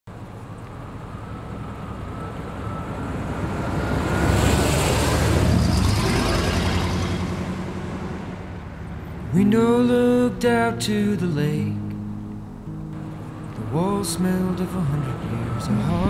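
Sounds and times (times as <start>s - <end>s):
pickup truck driving past: 0.7s - 9.9s.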